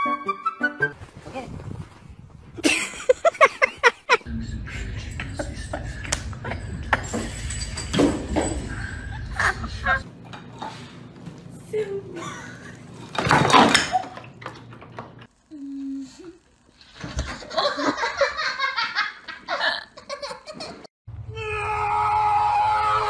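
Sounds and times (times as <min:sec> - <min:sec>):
people laughing: 0:02.6 - 0:07.1, 0:09.1 - 0:10.0, 0:17.3 - 0:20.9.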